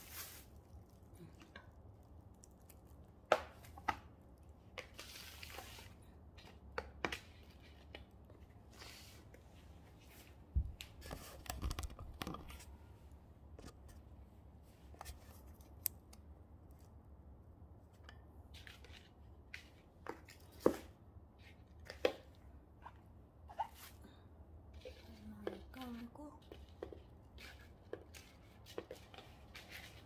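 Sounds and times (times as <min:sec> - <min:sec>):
soil rustling and scraping: 0:00.0 - 0:01.1.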